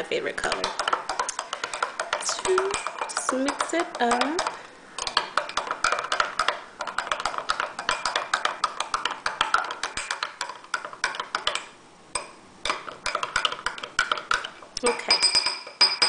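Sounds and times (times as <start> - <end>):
spoon clinking in glass cup: 12.2 - 16.0.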